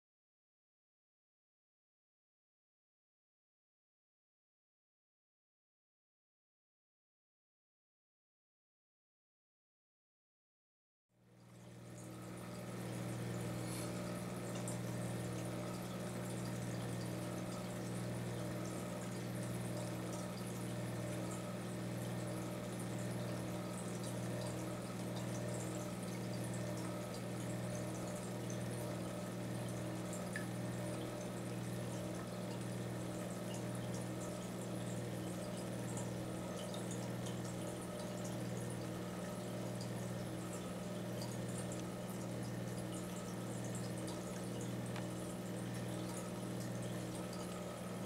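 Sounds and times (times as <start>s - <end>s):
aquarium pump humming: 11.2s - 48.0s
water bubbling and trickling: 11.4s - 48.0s.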